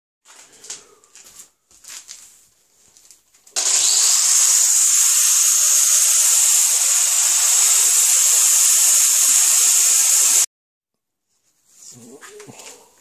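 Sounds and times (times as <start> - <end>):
angle grinder polishing metal: 3.6 - 10.5.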